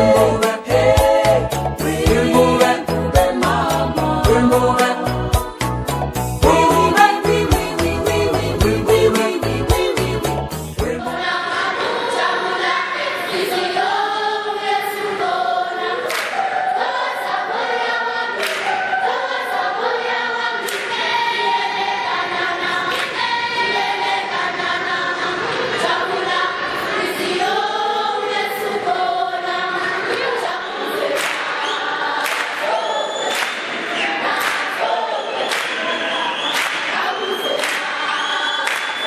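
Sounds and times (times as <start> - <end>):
children's choir singing: 0.0 - 5.8, 6.4 - 39.0
music with a beat: 0.0 - 11.1.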